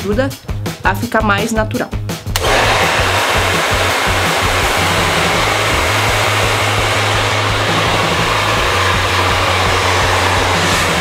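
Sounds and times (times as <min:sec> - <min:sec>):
hair dryer running: 0:02.3 - 0:11.0.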